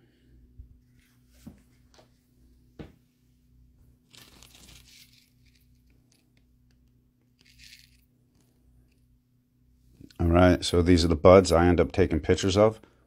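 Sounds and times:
plastic bag crinkling: 4.0 - 6.4, 7.4 - 8.0.

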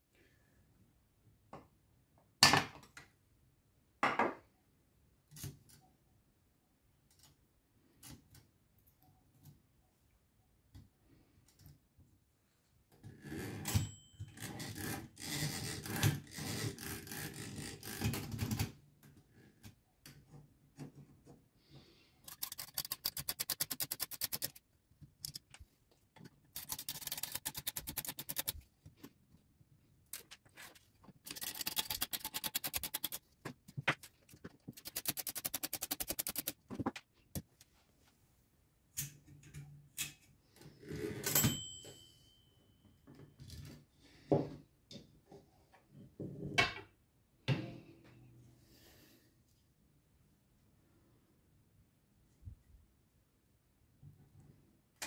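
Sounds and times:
screwdriver rapid clicking: 22.3 - 24.6, 26.6 - 28.6, 31.3 - 33.2, 34.7 - 36.6.

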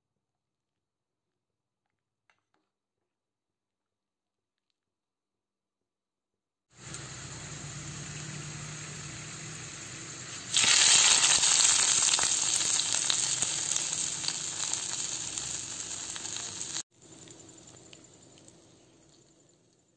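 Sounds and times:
hot oil sizzling: 6.7 - 19.9.

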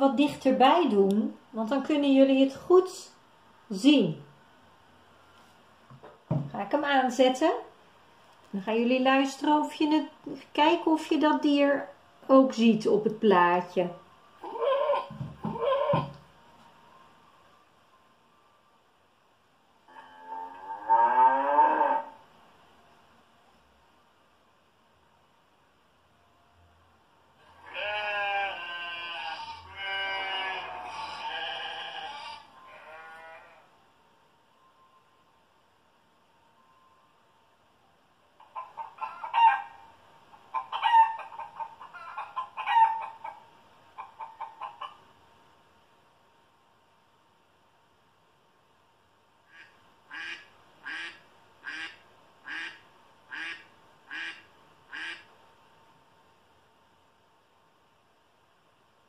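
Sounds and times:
sheep bleating through laptop speaker: 27.5 - 33.7
duck quacking through speaker: 27.6 - 32.4, 49.5 - 55.3.

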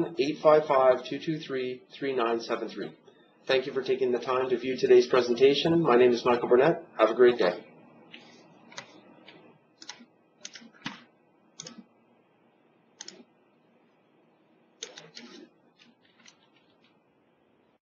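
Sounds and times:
mouse and keyboard clicks: 8.7 - 11.9, 13.0 - 13.3, 14.8 - 16.9.

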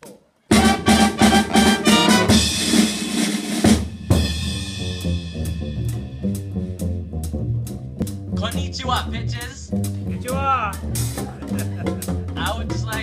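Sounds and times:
jazz trio playing: 0.5 - 13.0.

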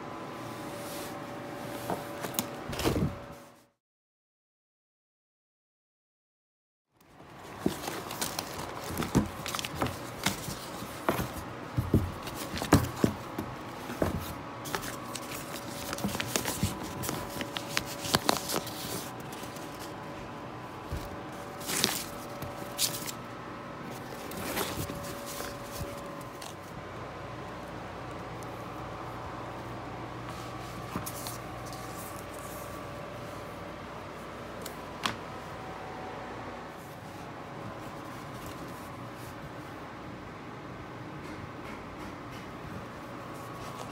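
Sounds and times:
faint steady hum: 7.0 - 41.7.

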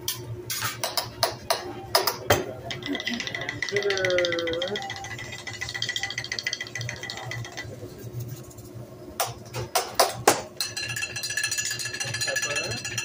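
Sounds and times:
seasoning shaker rattling: 2.7 - 8.8, 10.6 - 13.0.

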